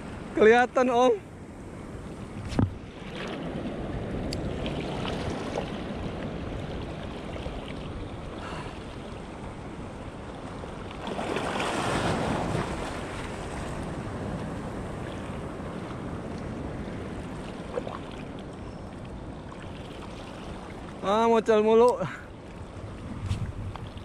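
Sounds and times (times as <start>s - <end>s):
waves washing against shore: 0.0s - 24.0s
wind buffeting microphone: 22.6s - 24.0s.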